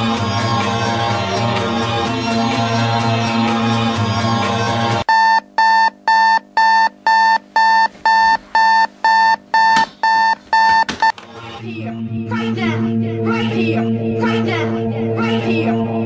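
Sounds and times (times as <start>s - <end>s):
music: 0.0s - 5.0s, 11.2s - 16.0s
alarm clock beeping: 5.1s - 10.9s.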